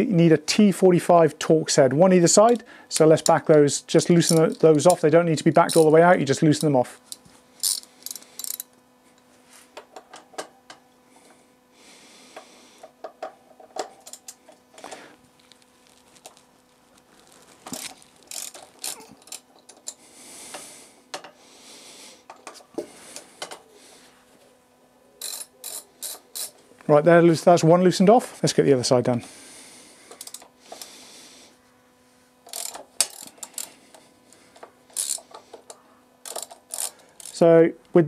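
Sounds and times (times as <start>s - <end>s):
socket ratchet clicking: 6.6s - 8.7s, 17.8s - 20.0s, 25.2s - 26.6s, 30.2s - 30.5s, 32.4s - 33.7s, 34.6s - 37.4s.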